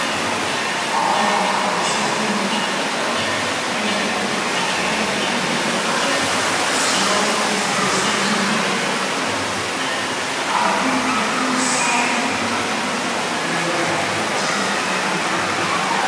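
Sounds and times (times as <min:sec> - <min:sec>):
running water and fountains splashing: 0:00.0 - 0:16.0.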